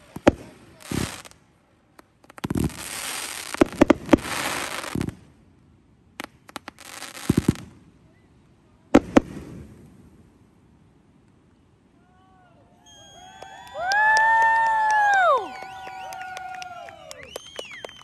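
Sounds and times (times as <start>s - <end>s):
fireworks crackling: 0.0s - 5.5s, 6.2s - 11.6s, 12.8s - 18.0s
fireworks shells bursting: 12.9s - 14.0s.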